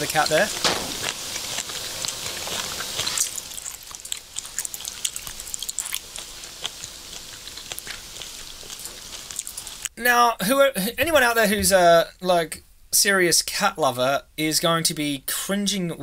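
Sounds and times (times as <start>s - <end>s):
close chewing and crackling: 0.0s - 10.0s.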